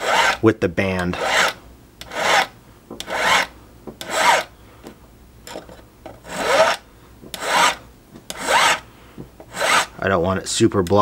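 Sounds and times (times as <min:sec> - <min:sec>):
hand file rasping on metal: 0:00.0 - 0:00.4, 0:01.1 - 0:04.5, 0:06.2 - 0:08.8, 0:09.4 - 0:09.9.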